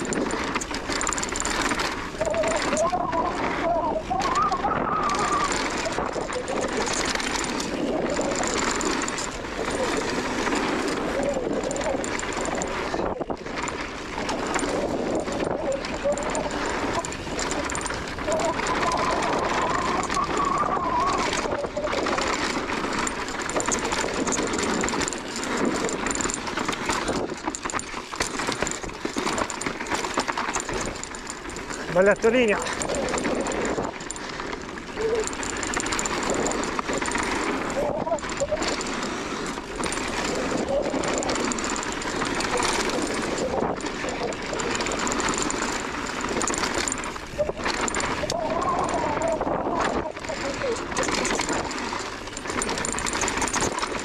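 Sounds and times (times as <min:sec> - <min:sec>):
bike chain and frame rattling: 0:00.0 - 0:54.0
freehub buzzing clicks: 0:00.0 - 0:54.0
tyres on loose dirt and stones: 0:00.0 - 0:54.0.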